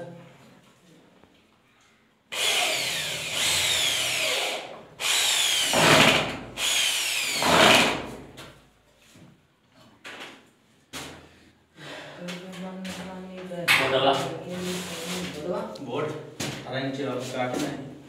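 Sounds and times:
power drill on gypsum board: 2.3s - 8.3s.

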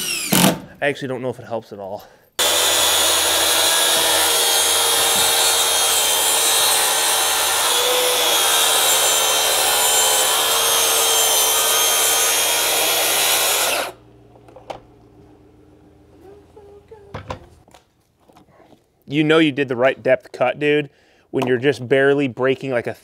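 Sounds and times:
circular saw cutting boards: 0.0s - 0.6s, 2.4s - 14.5s.

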